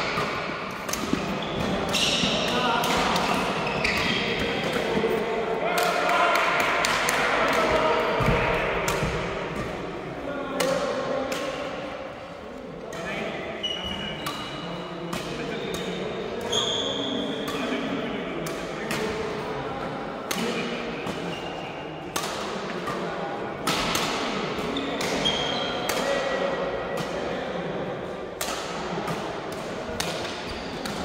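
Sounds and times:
badminton racket hits: 0.0s - 5.0s, 10.6s - 11.8s, 13.8s - 19.3s, 20.2s - 27.3s, 28.4s - 31.0s
shoes squeaking: 1.2s - 2.5s, 3.5s - 4.4s.

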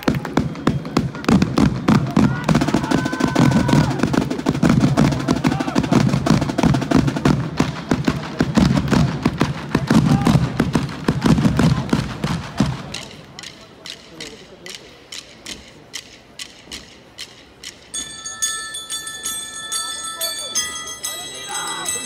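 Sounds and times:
snare and bass drums playing: 0.0s - 17.8s
held high tones: 17.6s - 22.0s.

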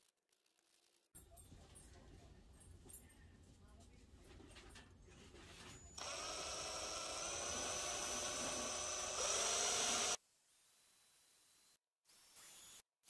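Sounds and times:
power drill motor whining: 6.0s - 10.2s.

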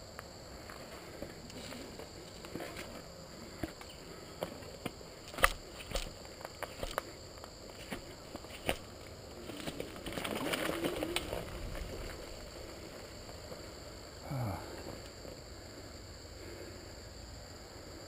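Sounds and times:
tyre noise on dirt and leaves: 0.0s - 15.4s
bike rattling over bumps: 0.8s - 14.0s.

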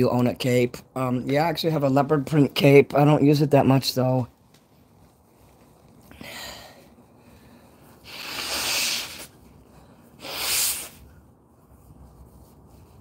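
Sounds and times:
breathy puffs of air: 6.1s - 11.2s.

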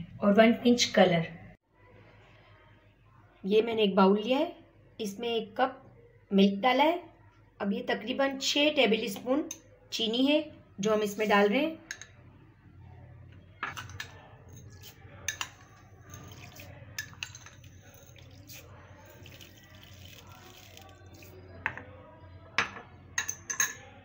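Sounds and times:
spoon clinking in glass bowl: 11.9s - 12.2s, 13.6s - 21.8s, 22.6s - 23.9s.

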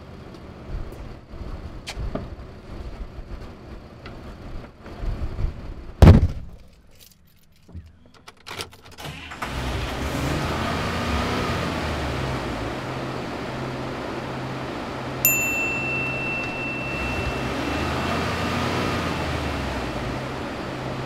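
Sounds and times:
truck engine running: 9.0s - 21.0s
bright chime ding: 15.2s - 18.4s.

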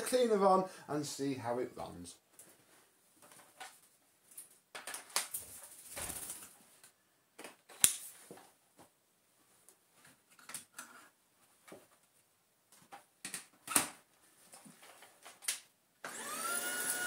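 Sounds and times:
plastic parts knocking and rustling: 3.2s - 6.2s.

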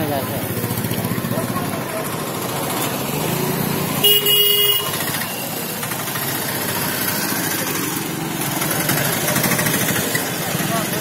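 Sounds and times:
street traffic: 0.0s - 11.0s
vehicle horn blast: 4.0s - 5.0s.

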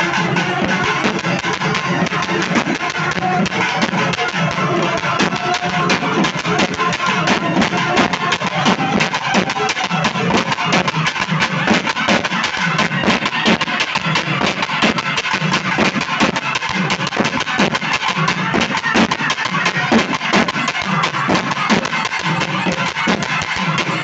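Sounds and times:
loud music with fast beat: 0.0s - 24.0s.

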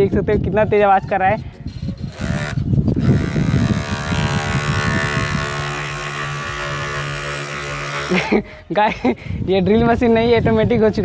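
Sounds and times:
electric drill motor buzzing: 2.1s - 8.4s.

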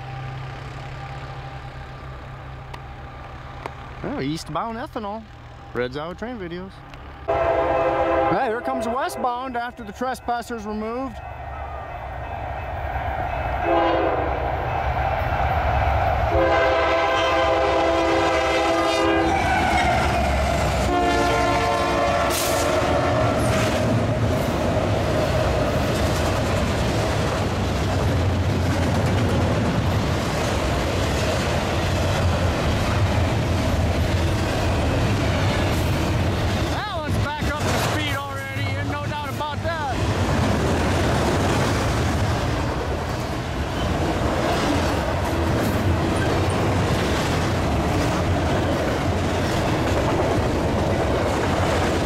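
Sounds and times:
train wheels rumbling on rail: 0.0s - 52.0s
locomotive horn blasts: 7.3s - 9.5s, 13.6s - 14.4s, 16.3s - 23.5s.

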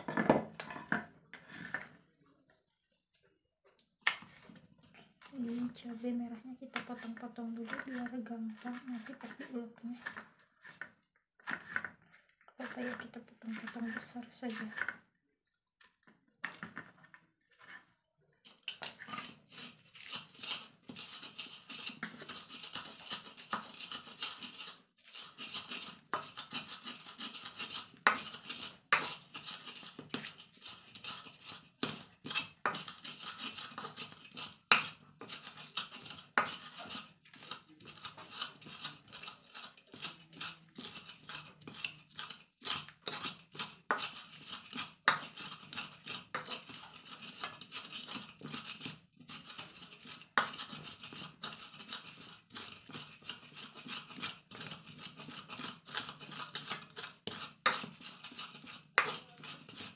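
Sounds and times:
pestle knocking on mortar: 0.0s - 1.1s, 56.0s - 58.0s
pestle scraping in mortar: 0.0s - 2.1s, 4.0s - 15.1s, 16.4s - 59.9s.

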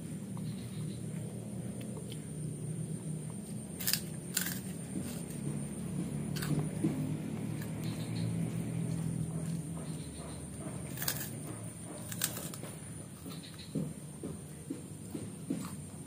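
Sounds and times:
low background hum: 0.0s - 16.0s
cracker crunching: 1.1s - 5.6s, 6.2s - 9.7s, 10.9s - 13.3s.

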